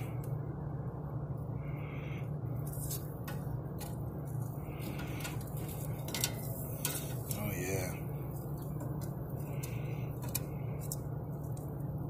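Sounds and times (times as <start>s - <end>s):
steady low hum: 0.0s - 12.0s
metal tongs clicking on grill grate: 6.0s - 7.4s.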